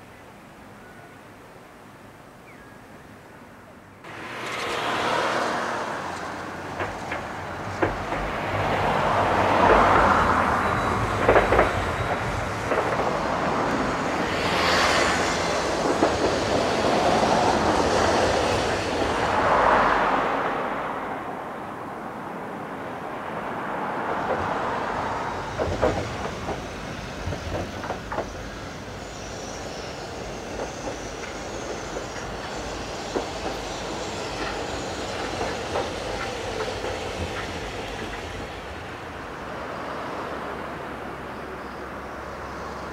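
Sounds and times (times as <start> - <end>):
road traffic: 1.8 - 42.9
streetcars passing: 1.9 - 42.9
tram wheels knocking over rail joints: 4.3 - 19.6, 24.2 - 29.2, 30.3 - 38.9.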